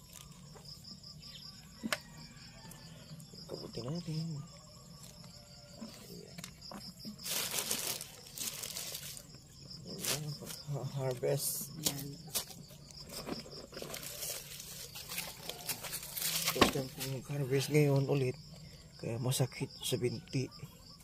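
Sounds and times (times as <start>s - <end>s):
insects chirring: 0.0s - 21.0s
plastic sheeting crinkling: 7.2s - 9.3s, 13.8s - 17.2s.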